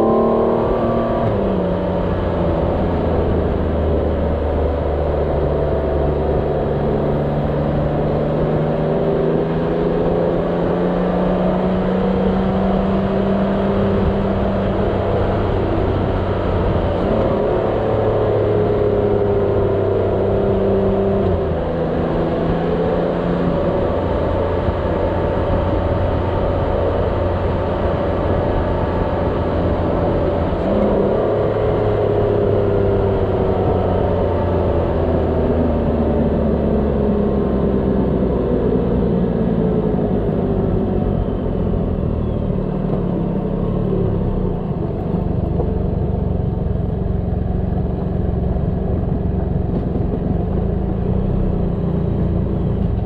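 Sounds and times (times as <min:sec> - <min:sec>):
motorcycle engine running: 0:20.5 - 0:53.0
wind noise: 0:47.7 - 0:53.0.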